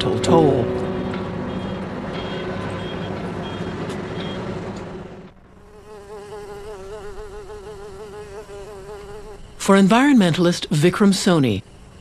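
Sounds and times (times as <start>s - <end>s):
city traffic noise: 0.0s - 5.8s, 9.4s - 12.0s
bees buzzing: 5.5s - 10.5s.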